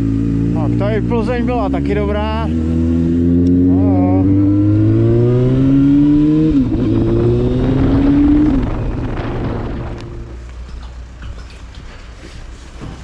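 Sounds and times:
motorcycle engine accelerating: 0.0 - 11.1.

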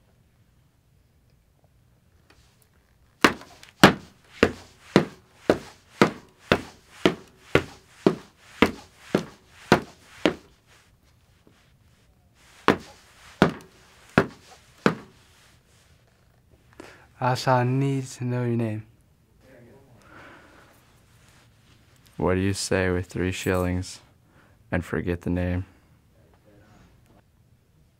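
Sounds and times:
footsteps on wooden dock: 3.2 - 10.5, 12.5 - 15.2.

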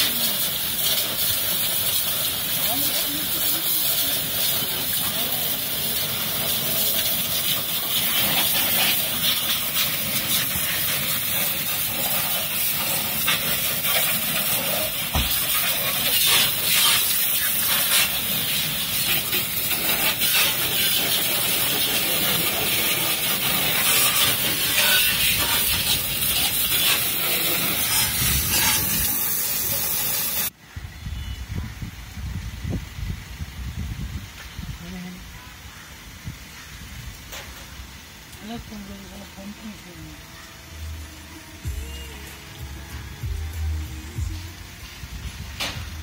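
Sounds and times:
pressure washer spraying metal: 0.0 - 30.6, 40.6 - 46.0.

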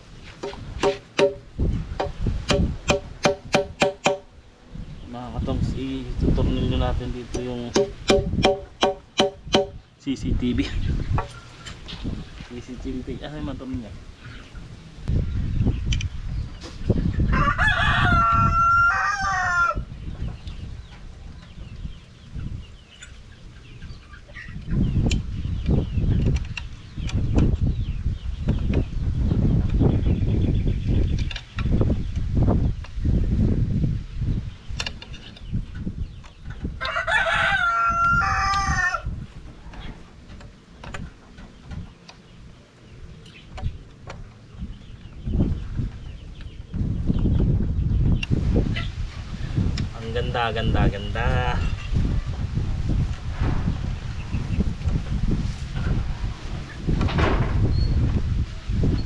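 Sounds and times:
rooster crowing: 17.3 - 19.9, 36.8 - 39.1
low rumbling noise: 37.5 - 59.0.

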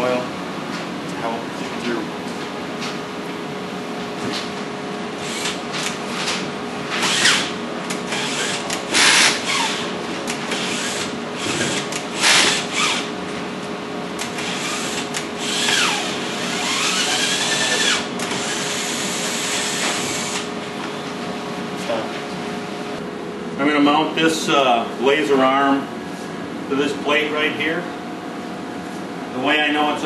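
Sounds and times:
cordless drill running: 5.2 - 5.6, 7.0 - 7.5, 8.1 - 13.1, 14.2 - 20.5.

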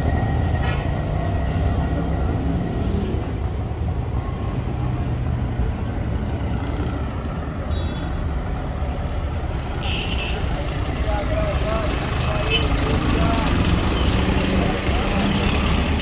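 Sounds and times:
vehicle engines rumbling: 0.0 - 16.0.

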